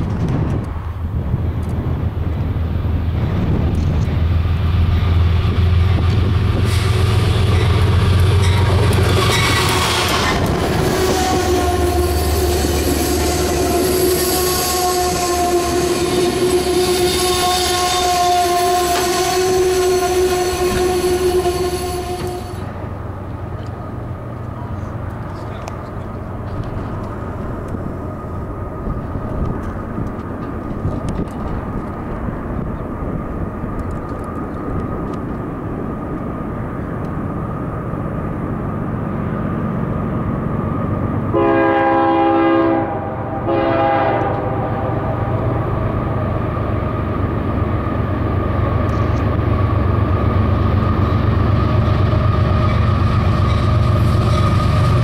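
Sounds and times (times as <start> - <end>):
freight train rumble: 0.0 - 55.0
locomotive horn: 6.6 - 22.7, 41.3 - 45.7.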